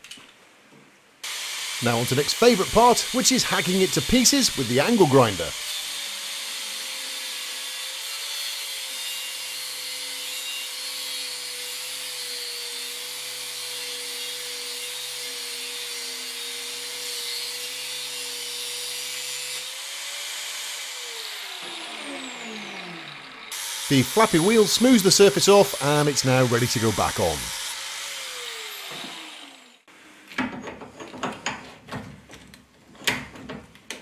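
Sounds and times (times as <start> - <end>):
grinding hiss on steel: 1.2 - 5.8, 23.6 - 27.8
angle grinder motor whine: 20.4 - 29.8.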